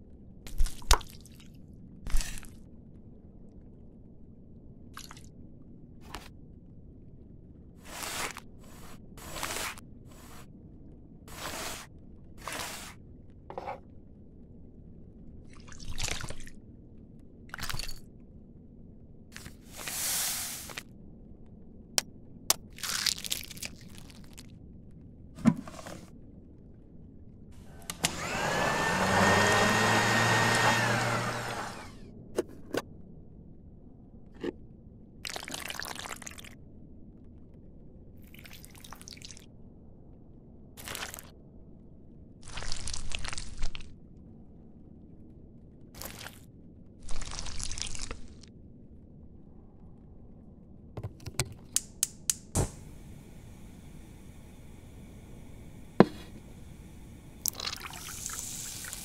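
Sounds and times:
blender running: 0:27.7 - 0:32.0, 0:55.4 - 0:56.7.

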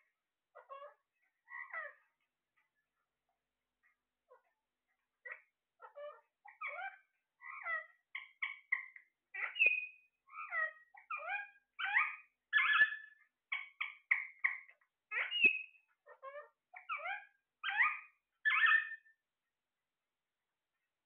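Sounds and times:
parakeets squawking: 0:05.3 - 0:19.0.

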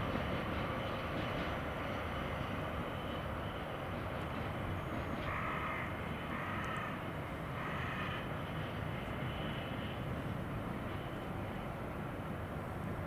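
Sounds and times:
diesel locomotive engine running: 0:00.0 - 0:13.0.

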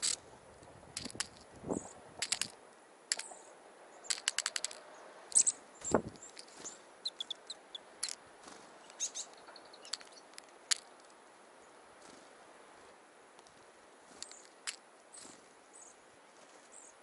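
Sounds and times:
beaks pecking metal cup: 0:00.0 - 0:00.2, 0:01.0 - 0:03.4, 0:04.0 - 0:08.2, 0:08.8 - 0:11.1, 0:13.4 - 0:15.4
short high bird chirps: 0:05.3 - 0:08.2, 0:08.8 - 0:10.3.

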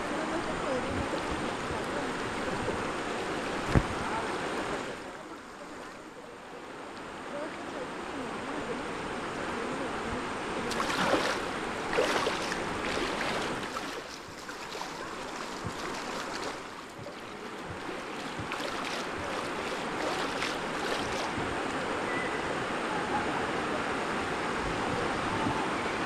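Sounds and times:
river water rushing and splashing: 0:00.0 - 0:26.0.

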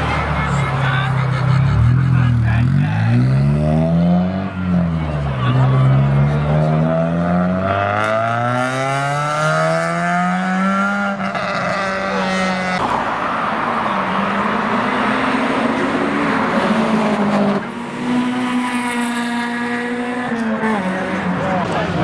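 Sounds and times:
car engine accelerating: 0:01.6 - 0:22.0
engine revving up: 0:01.8 - 0:12.8.

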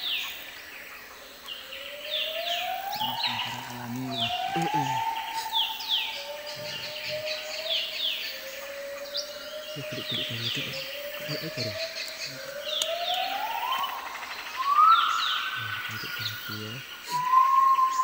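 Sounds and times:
high downward-sliding animal calls: 0:01.7 - 0:18.0
siren-like tone: 0:01.9 - 0:07.4, 0:09.8 - 0:17.2.

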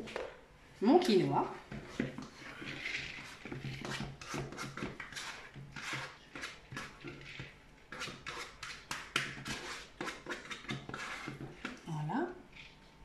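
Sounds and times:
plastic spatula scraping bowl: 0:01.1 - 0:12.8.

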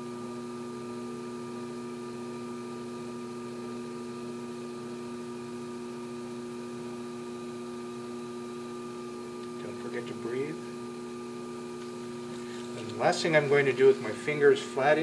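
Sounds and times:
potter's wheel motor hum: 0:00.0 - 0:15.0.

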